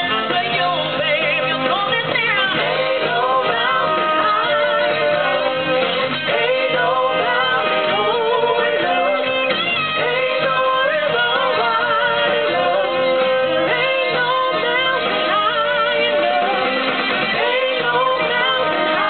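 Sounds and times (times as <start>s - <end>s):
band accompaniment: 0.0s - 19.0s.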